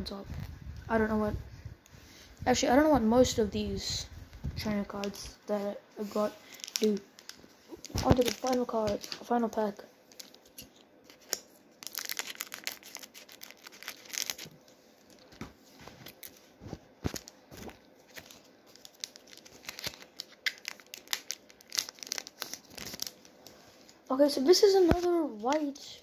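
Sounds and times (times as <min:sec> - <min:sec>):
foil wrapper crackling and ripping: 0:06.4 - 0:09.5, 0:10.1 - 0:15.4, 0:17.0 - 0:23.3.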